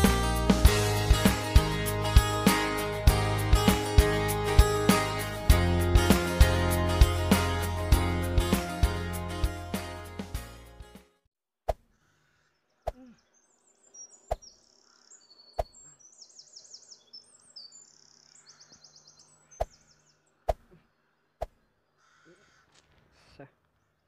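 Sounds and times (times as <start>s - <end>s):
birds chirping: 11.9s - 24.0s.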